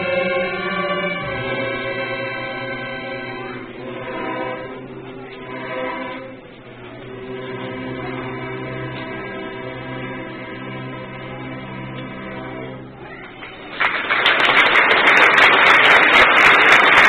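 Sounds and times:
string orchestra playing chords: 0.0s - 13.2s.

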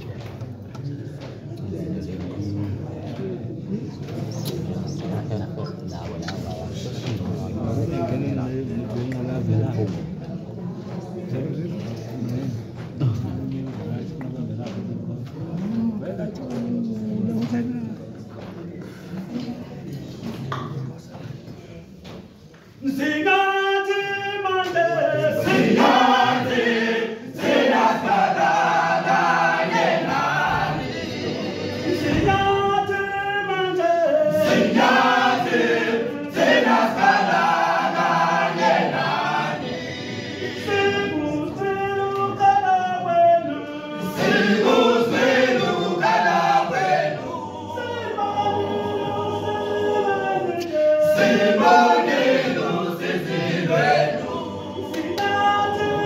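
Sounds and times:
male choir singing a cappella: 22.8s - 56.0s.

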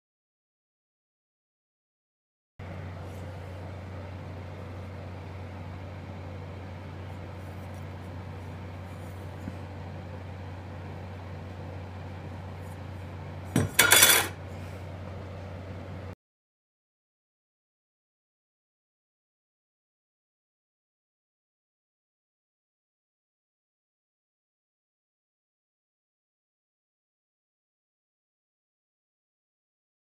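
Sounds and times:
steady low hum: 2.6s - 16.2s
saw blade clattering on bench: 13.6s - 14.4s.

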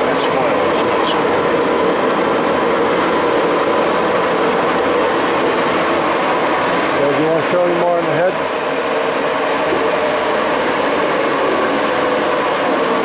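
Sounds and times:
lathe machine drone: 0.0s - 13.0s.

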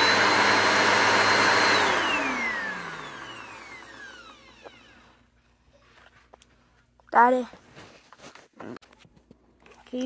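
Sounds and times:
vacuum cleaner motor whining: 0.0s - 5.4s.

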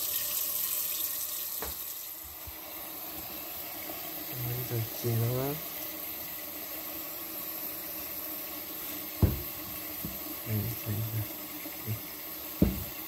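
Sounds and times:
tap water pouring into pot: 0.0s - 13.0s
sharp knock: 9.2s - 9.6s, 12.6s - 13.0s.

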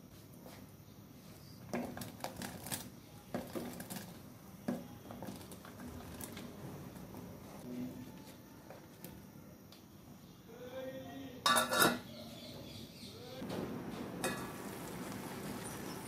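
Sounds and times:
boiling water hiss: 1.7s - 7.7s, 13.4s - 16.0s.

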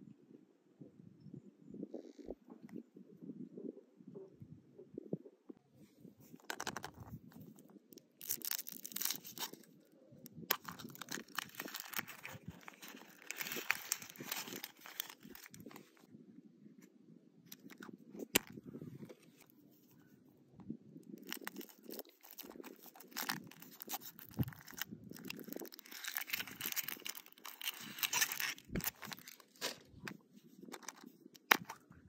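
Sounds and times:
plastic capsule clicking: 6.4s - 7.0s
foil wrapper crinkling and tearing: 8.0s - 9.7s, 10.3s - 16.0s, 21.2s - 31.7s.

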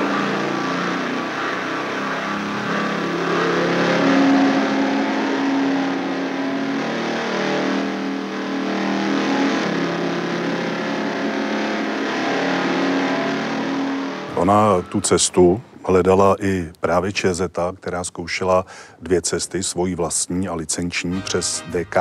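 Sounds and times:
motorcycle engine accelerating: 0.0s - 15.1s.

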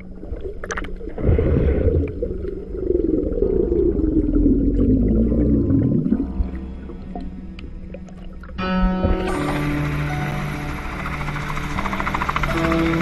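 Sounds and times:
underwater rumble and bubbles: 0.0s - 13.0s
faint music: 4.4s - 13.0s.

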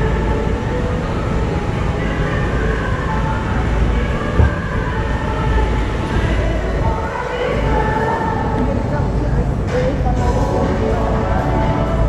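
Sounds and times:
faint distant voices: 0.0s - 12.0s
low rumble of indoor passage: 0.0s - 12.0s
thump: 4.4s - 4.6s.

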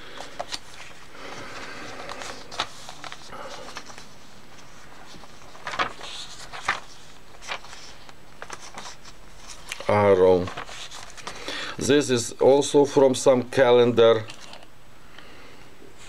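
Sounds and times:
paper rustling: 0.1s - 11.5s, 14.2s - 14.7s
paper crackles: 0.2s - 11.5s, 14.2s - 14.7s.

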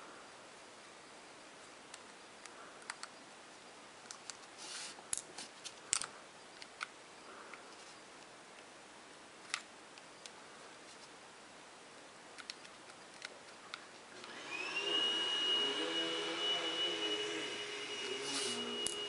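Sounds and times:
high machine whine: 14.1s - 19.0s.

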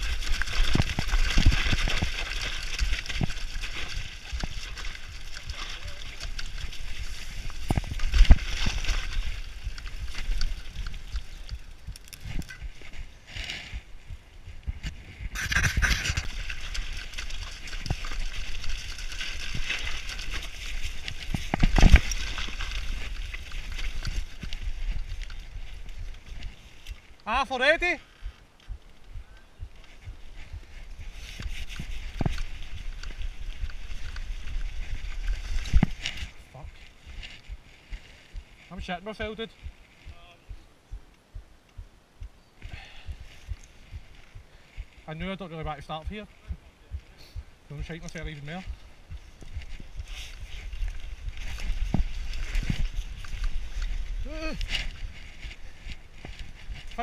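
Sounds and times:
bike knocking and rattling: 0.0s - 13.8s
bike tyre noise on dirt: 0.0s - 57.0s
wind rushing on microphone: 6.6s - 16.8s.

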